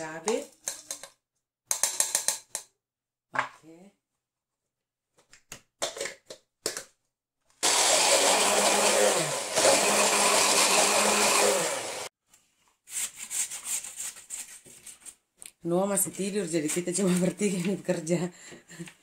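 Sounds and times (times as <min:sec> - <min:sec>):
electric chopper motor: 0:07.6 - 0:12.1.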